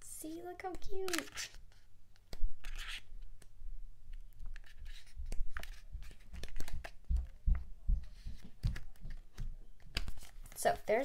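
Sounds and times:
paper pages rustling: 0:00.8 - 0:01.9, 0:02.6 - 0:03.2, 0:04.1 - 0:07.4, 0:08.0 - 0:11.0.

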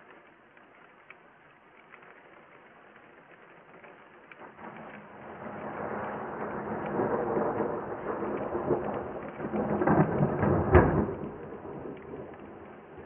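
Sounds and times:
rain hissing: 0:00.0 - 0:13.0
thunder rumble and crack: 0:04.2 - 0:13.0.

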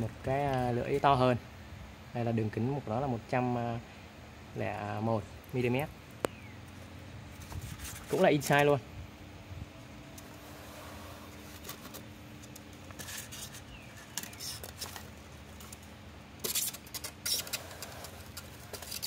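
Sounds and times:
steady low hum: 0:00.0 - 0:19.0
foam rustling and crackling: 0:06.7 - 0:08.8, 0:10.1 - 0:19.0.

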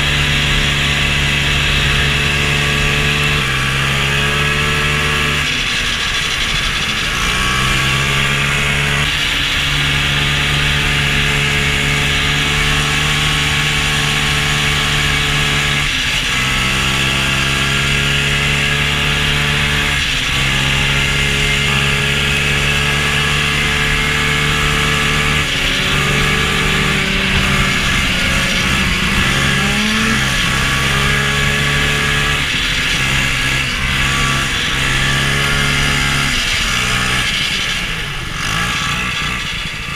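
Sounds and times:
snowmobile engine running: 0:00.0 - 0:39.9
sled hissing over snow: 0:22.6 - 0:39.8.

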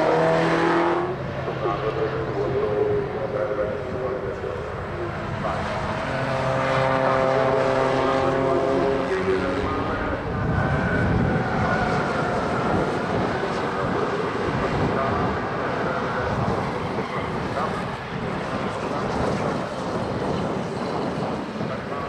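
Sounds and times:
race car engine steady note: 0:00.0 - 0:11.4
rough race car engine passing: 0:00.0 - 0:22.0.

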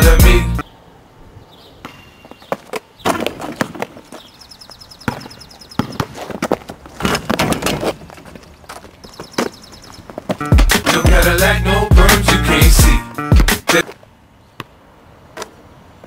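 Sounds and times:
basketball bouncing on pavement: 0:01.8 - 0:04.3, 0:04.9 - 0:10.9.

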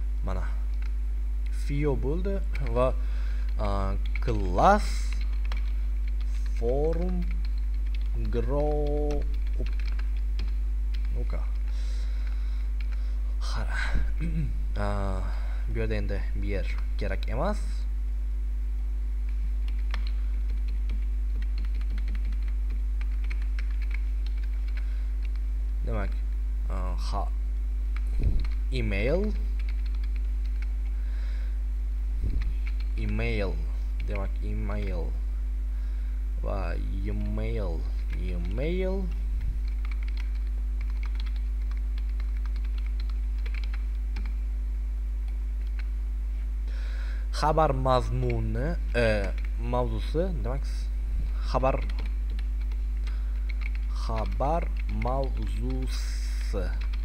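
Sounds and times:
low electrical hum: 0:00.0 - 0:57.0
keyboard keys clicking: 0:05.0 - 0:11.2, 0:19.6 - 0:25.4, 0:32.4 - 0:33.2, 0:38.1 - 0:44.4, 0:51.8 - 0:55.4.

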